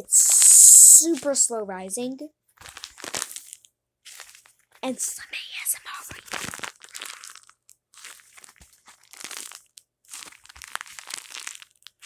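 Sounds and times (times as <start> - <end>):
squishy toy crinkling and crunching: 2.6 - 12.0.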